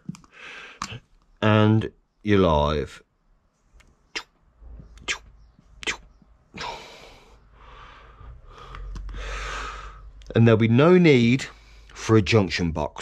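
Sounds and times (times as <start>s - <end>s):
marker clicks and taps: 0.0s - 1.0s, 8.6s - 9.2s.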